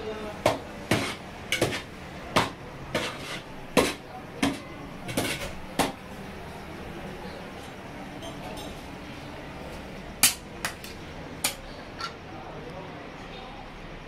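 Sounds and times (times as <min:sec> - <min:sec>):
metal spoon clanking on pan and plates: 0:00.5 - 0:06.0, 0:08.2 - 0:08.9, 0:10.2 - 0:12.2.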